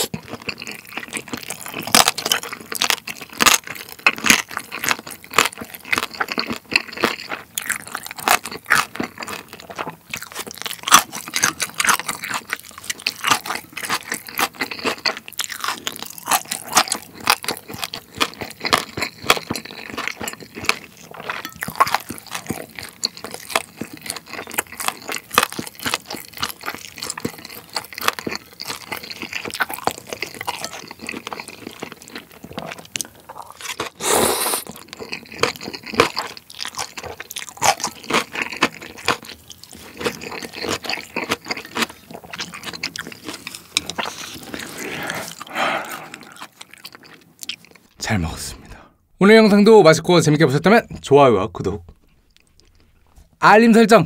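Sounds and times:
chewing and crunching noodles: 0:00.0 - 0:48.9, 0:51.9 - 0:53.4.

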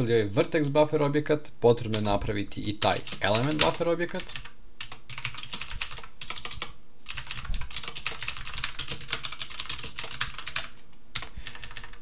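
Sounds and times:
computer keyboard typing: 0:02.8 - 0:12.0.

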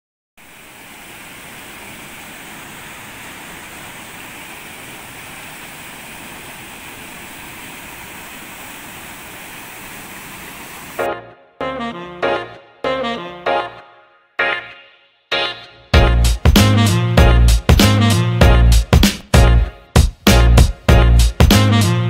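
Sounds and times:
water rushing through channel: 0:00.4 - 0:11.1.

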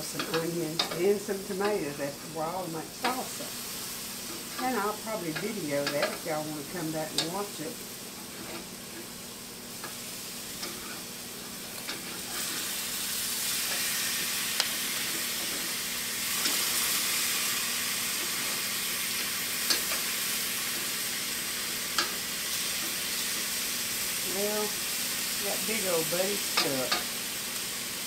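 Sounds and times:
mushrooms sizzling on grill: 0:00.0 - 0:28.0
sharp clicks of turning food: 0:18.0 - 0:23.2.

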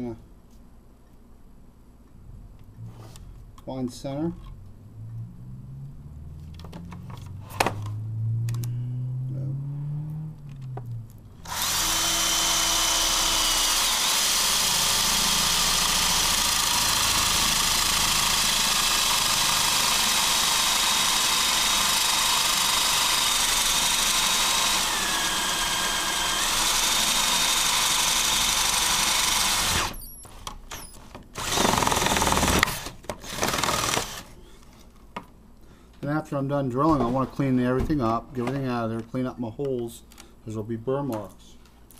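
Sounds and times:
power drill boring through plastic: 0:11.4 - 0:34.3.

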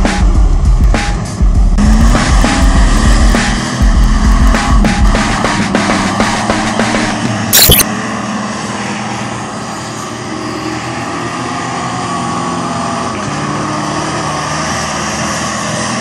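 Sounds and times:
loud burst of noise: 0:07.5 - 0:07.8.

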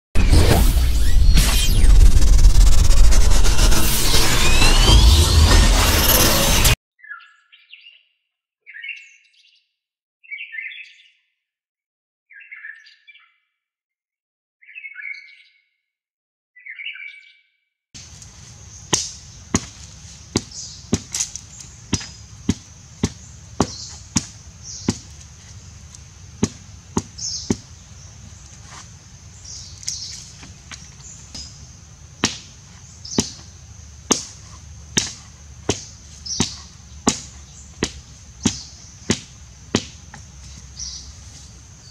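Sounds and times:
steady high drone: 0:00.2 - 0:06.8
bird chirping: 0:18.0 - 0:41.9
blade chopping wood: 0:34.1 - 0:34.4, 0:35.0 - 0:40.3.

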